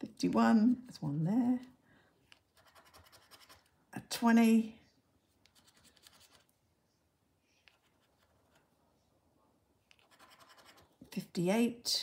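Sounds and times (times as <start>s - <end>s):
coin scratching scratch card: 2.5s - 3.7s, 10.0s - 10.9s.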